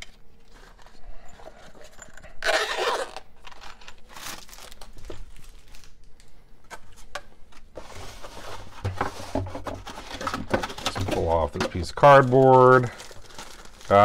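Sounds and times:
rustling of packaging: 0.0 - 14.0.

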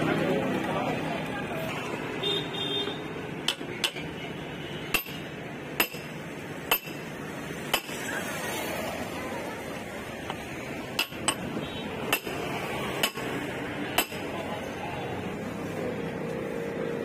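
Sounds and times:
hammer clinking on metal wheel: 4.9 - 7.1, 7.7 - 8.0, 11.0 - 11.5, 12.1 - 12.4, 14.0 - 14.3.

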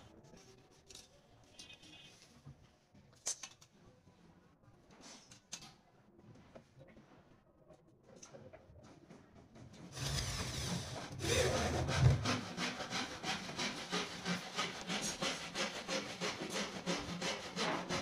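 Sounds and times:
rhythmic scraping: 9.9 - 18.0.

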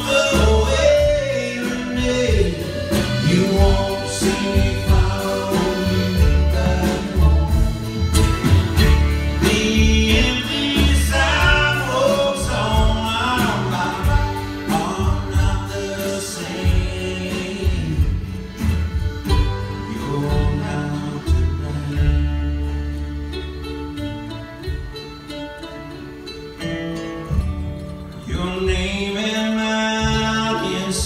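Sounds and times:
person singing: 0.0 - 23.1
acoustic guitar: 0.0 - 31.0
drums: 0.0 - 31.0
mandolin: 0.0 - 31.0
upright bass: 0.0 - 31.0.

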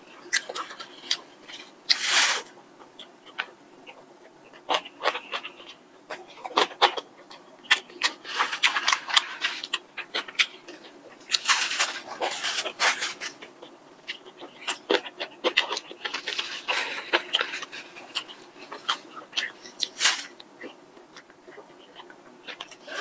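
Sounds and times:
chewing with wet mouth clicks: 2.8 - 11.5, 13.4 - 22.9
plastic glove rustling: 10.4 - 13.4.

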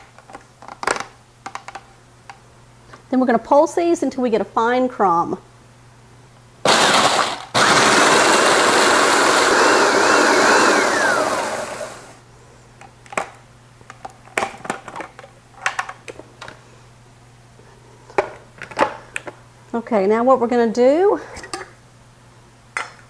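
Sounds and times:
food processor pulsing: 6.7 - 12.2.

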